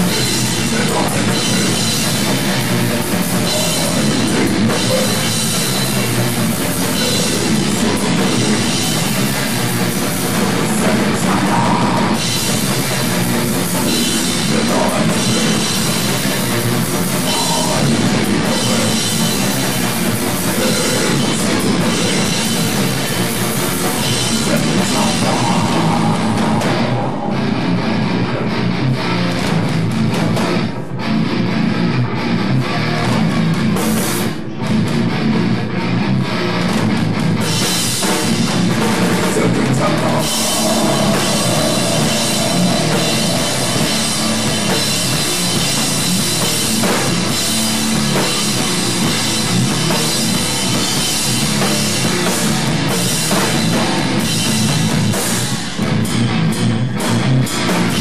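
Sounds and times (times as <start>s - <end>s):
drum kit: 0.0s - 58.0s
electric guitars: 0.0s - 58.0s.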